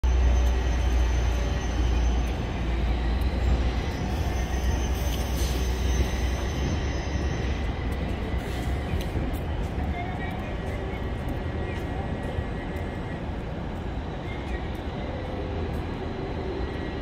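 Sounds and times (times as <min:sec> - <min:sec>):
street noise hiss: 0:00.1 - 0:17.0.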